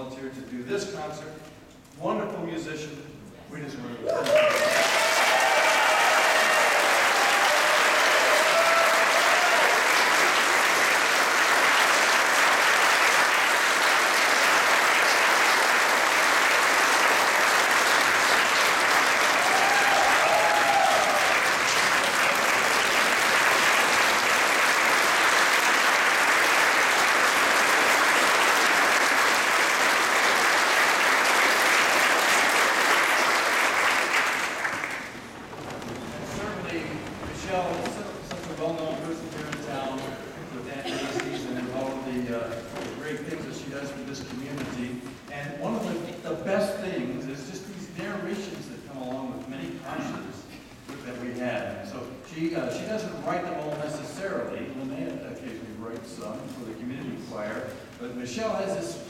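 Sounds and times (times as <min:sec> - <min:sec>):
audience applauding: 0:04.0 - 0:43.5.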